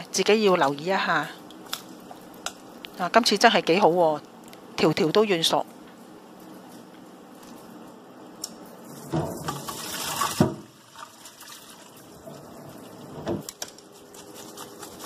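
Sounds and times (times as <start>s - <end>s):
water splashing into metal sink: 8.9s - 13.5s.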